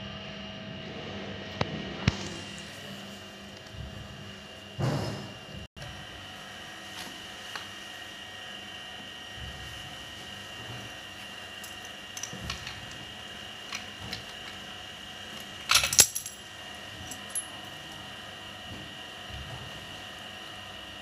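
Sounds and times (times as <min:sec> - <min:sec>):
metallic clatter of clamp: 0:15.7 - 0:16.4.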